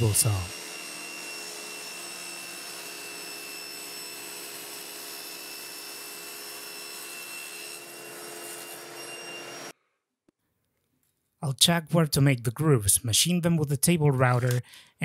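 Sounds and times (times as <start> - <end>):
table saw cutting panel: 0.0 - 9.7.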